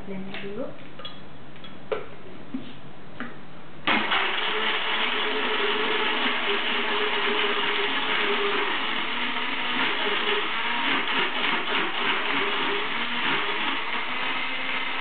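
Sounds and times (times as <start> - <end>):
electric blender running: 3.9 - 15.0.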